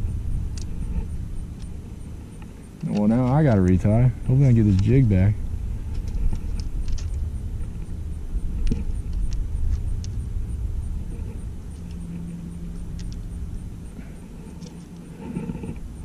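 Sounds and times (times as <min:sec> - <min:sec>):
low hum: 0:00.0 - 0:16.0
low outdoor rumble: 0:00.0 - 0:16.0
faint clicks: 0:12.9 - 0:13.2.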